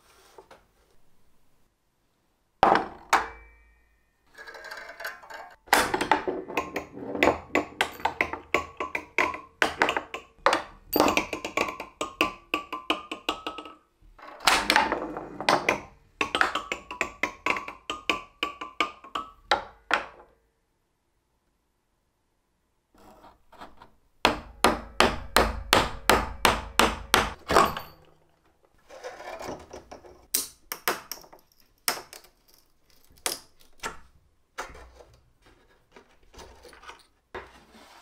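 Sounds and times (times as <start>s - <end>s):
ball clicking through nail pins: 4.4s - 13.9s, 14.6s - 19.9s.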